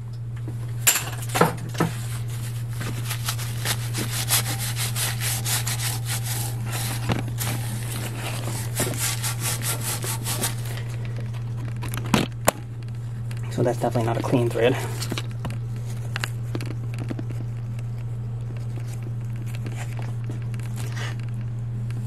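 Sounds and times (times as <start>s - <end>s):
steady low hum: 0.0s - 22.0s
hand rasping over pipe threads: 1.7s - 11.8s.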